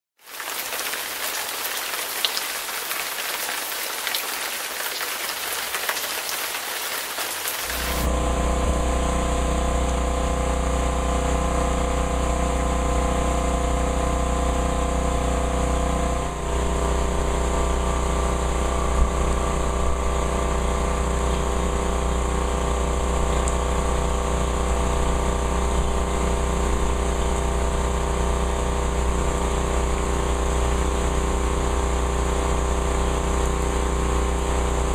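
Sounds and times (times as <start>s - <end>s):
heavy rain hiss: 0.2s - 8.1s.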